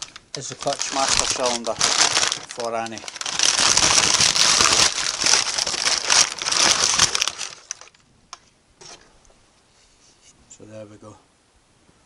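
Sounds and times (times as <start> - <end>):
packing paper crumpling: 0.0 - 8.0.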